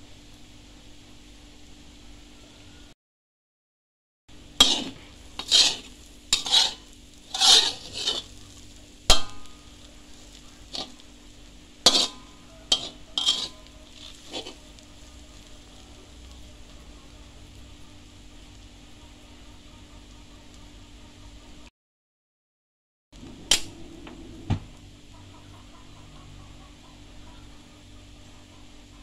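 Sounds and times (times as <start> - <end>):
metal spatula scraping wok: 4.5 - 16.8
spatula clinking against pan: 4.6 - 8.3, 11.9 - 14.6.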